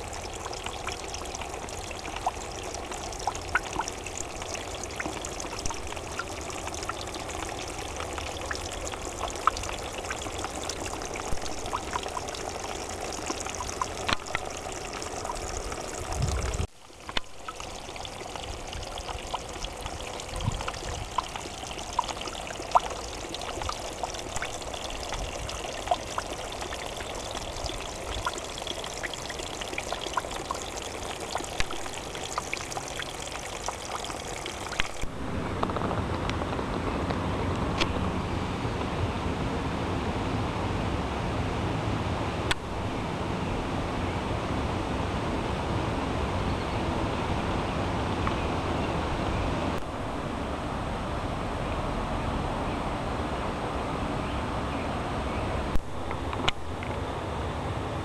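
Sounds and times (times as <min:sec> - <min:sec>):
water dripping: 0:00.0 - 0:35.8
water trickling down rocks: 0:00.0 - 0:36.3.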